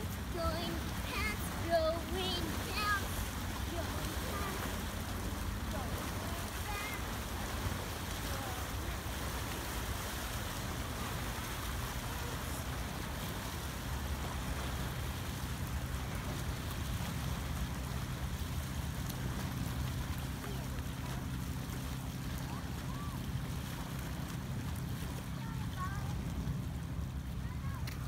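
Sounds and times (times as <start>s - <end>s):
waves lapping on rocks: 0.0s - 28.0s.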